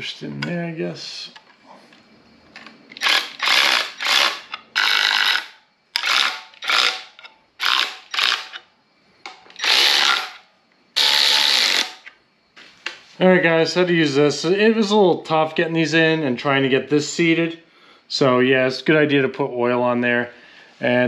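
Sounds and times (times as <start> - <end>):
electric ratchet running bolts: 2.9 - 8.6, 9.5 - 10.4, 11.0 - 12.1.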